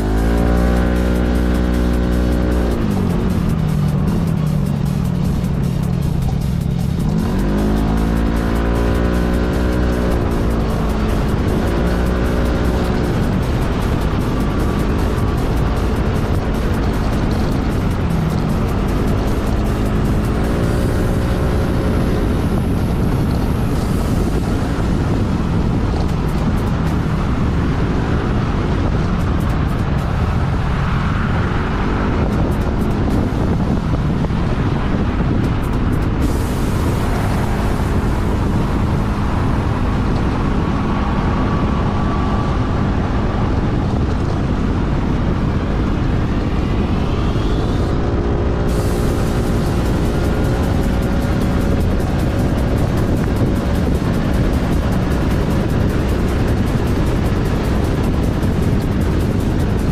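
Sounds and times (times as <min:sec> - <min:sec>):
scooter engine running: 0:00.0 - 0:59.9
wind and road noise: 0:00.0 - 0:59.9.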